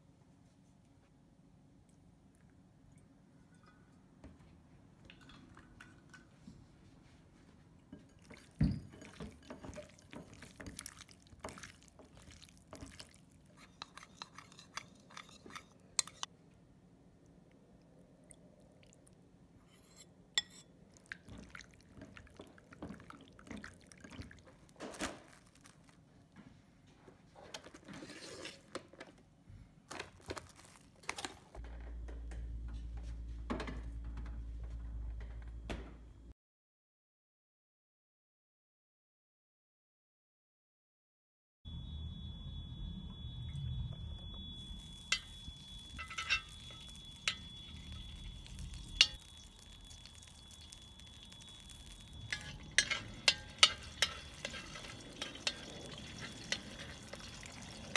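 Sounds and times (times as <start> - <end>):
utensil clinking against ceramic bowl: 8.0 - 16.3, 19.7 - 20.7, 44.9 - 57.9
liquid pouring into a bowl: 8.2 - 16.2, 20.9 - 24.7, 44.6 - 57.9
steady low hum: 41.7 - 49.7.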